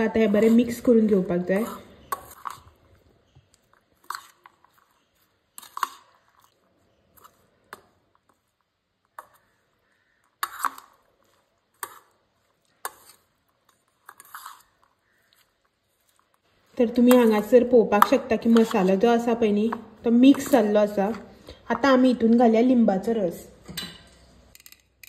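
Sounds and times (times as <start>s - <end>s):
metal spoon scraping a steel bowl: 0.0s - 2.8s, 4.0s - 8.4s, 10.4s - 21.3s.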